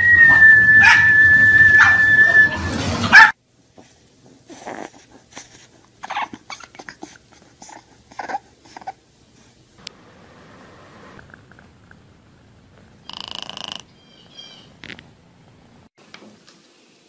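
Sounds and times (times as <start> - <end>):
puppy whimpering and yipping: 6.0 - 9.0.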